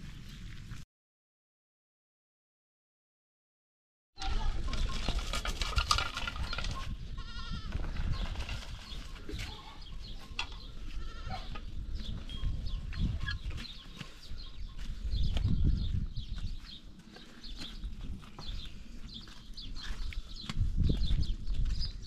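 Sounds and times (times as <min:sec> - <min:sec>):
goat bleating: 0:04.2 - 0:04.8, 0:07.2 - 0:07.8, 0:10.6 - 0:11.6
stone roller rolling over gravel: 0:04.6 - 0:06.9.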